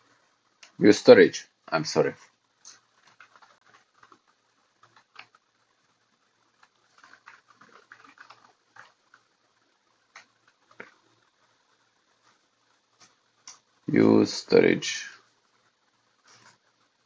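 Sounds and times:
computer keys typing: 2.6 - 5.5, 6.6 - 9.4.

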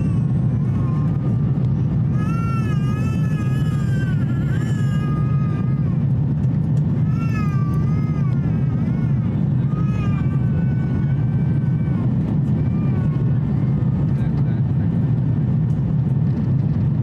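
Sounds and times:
airplane cabin drone: 0.0 - 17.0
baby crying: 2.1 - 6.0, 7.0 - 13.3.

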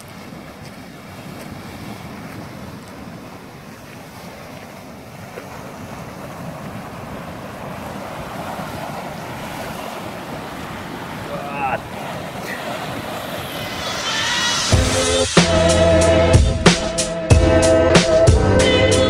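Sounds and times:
wind buffeting microphone: 0.0 - 14.9.

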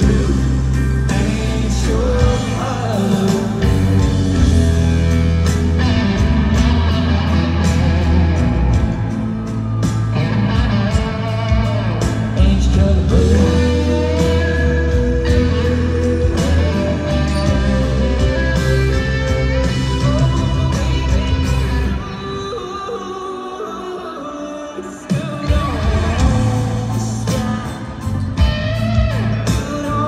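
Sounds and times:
live country-rock band: 0.0 - 30.0
lead guitar bending notes: 3.5 - 22.2.

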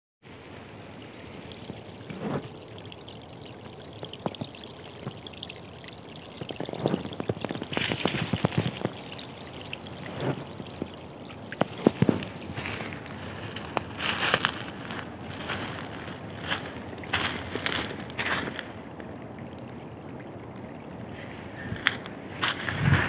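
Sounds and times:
stream trickling and gurgling: 0.2 - 23.0
footsteps on dry leaves and twigs: 7.7 - 9.0, 11.6 - 18.8, 21.6 - 23.0.

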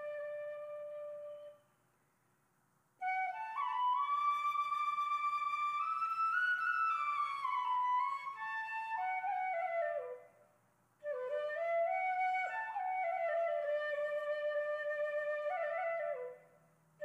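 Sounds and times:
slow wind instrument melody: 0.0 - 1.6.

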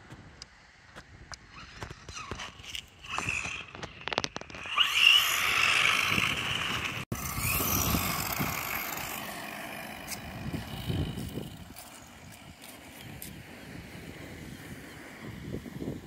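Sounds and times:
toy truck electric motor whining: 1.5 - 13.4
tyres hissing on asphalt: 7.1 - 16.0.

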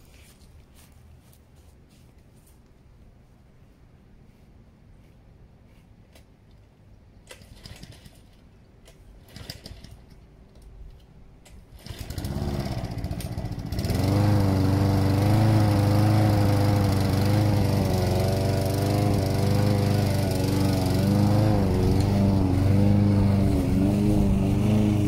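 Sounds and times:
lawn mower engine running: 11.7 - 25.0.

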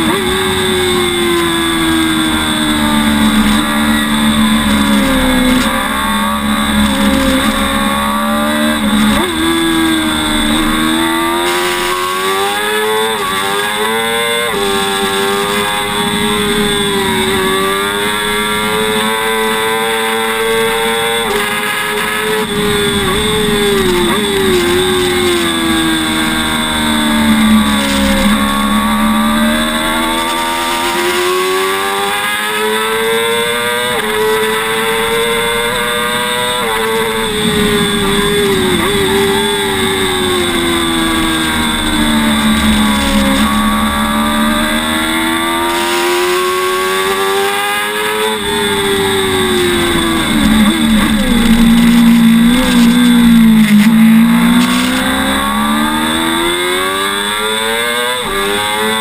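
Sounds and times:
motorcycle engine accelerating: 0.0 - 59.0.

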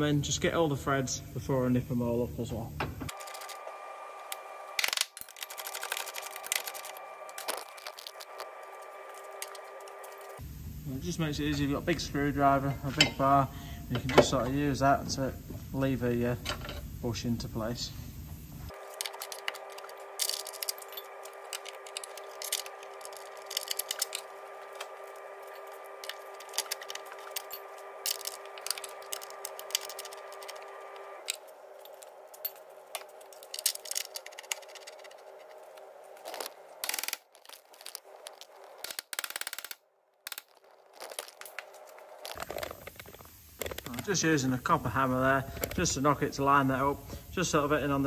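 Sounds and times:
steady background hum: 0.0 - 48.0
metal tools clinking and scraping: 12.6 - 13.3, 18.8 - 35.6.

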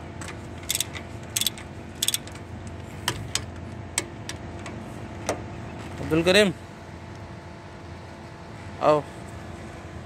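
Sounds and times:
ratchet wrench clicking: 0.6 - 2.4.

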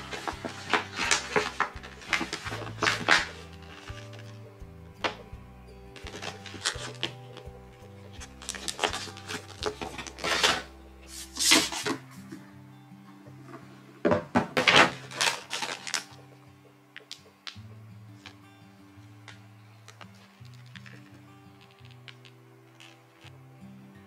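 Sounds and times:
plastic packaging rustling: 0.0 - 4.4, 6.0 - 7.5, 8.2 - 12.1, 14.5 - 16.2, 19.3 - 23.3
soft background music: 0.0 - 24.0.

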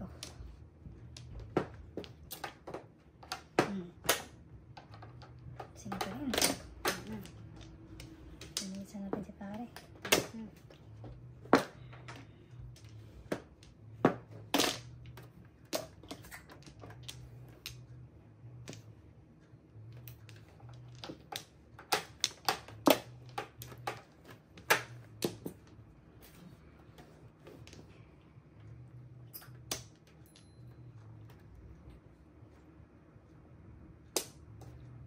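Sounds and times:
mahjong tiles clacking: 0.0 - 25.9.

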